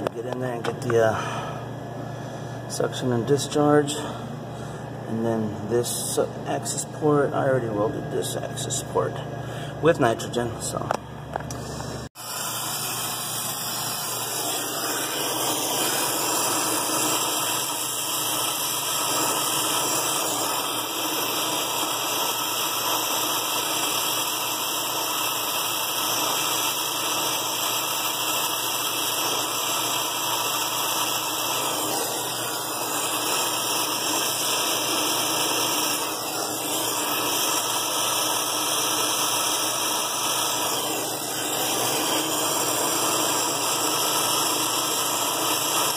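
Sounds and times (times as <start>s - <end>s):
torch flame hissing: 11.7s - 45.9s.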